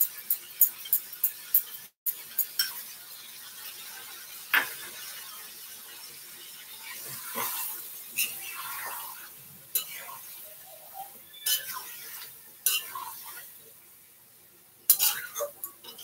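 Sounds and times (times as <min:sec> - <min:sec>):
utensil scraping a pan: 0:07.0 - 0:13.5, 0:14.9 - 0:16.0.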